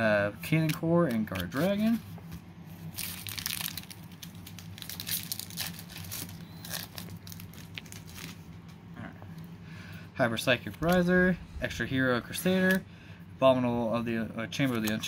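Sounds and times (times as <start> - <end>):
foil wrapper crinkling and tearing: 2.9 - 8.5.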